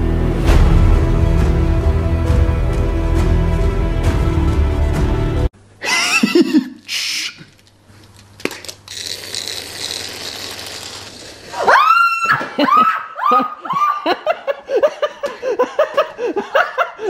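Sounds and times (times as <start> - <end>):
woman screaming and shrieking: 6.9 - 7.4, 11.5 - 14.2.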